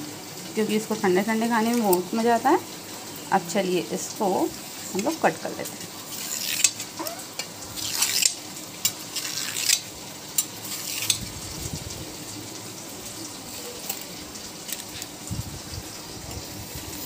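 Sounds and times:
knife scraping a steel plate: 0:06.1 - 0:06.9, 0:07.8 - 0:11.2.

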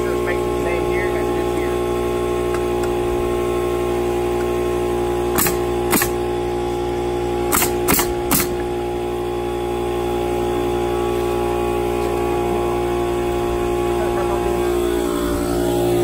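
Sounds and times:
nail gun firing: 0:05.3 - 0:06.2, 0:07.4 - 0:08.7.

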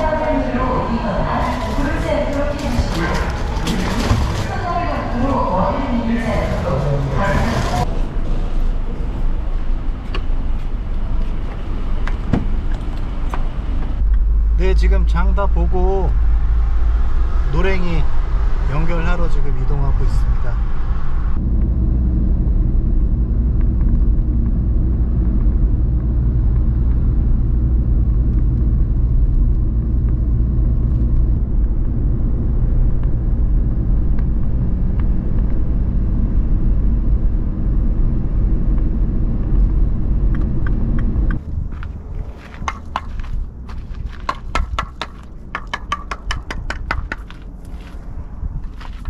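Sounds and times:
car cabin road and engine noise: 0:00.0 - 0:49.0
sharp clicks and knocks: 0:44.2 - 0:47.5.

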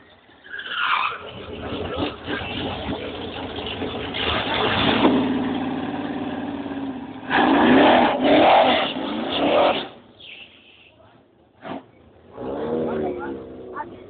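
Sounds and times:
race car engine revving: 0:01.1 - 0:10.0, 0:11.6 - 0:14.0.

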